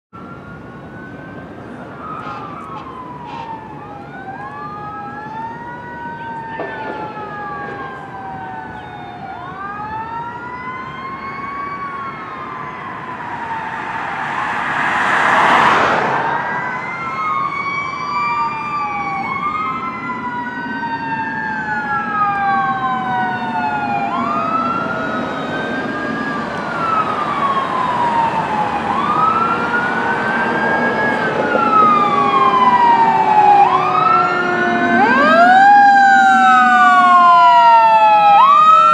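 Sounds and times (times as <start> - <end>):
fire engine sirens wailing: 0.1 - 38.9
rushing noise: 12.4 - 17.8.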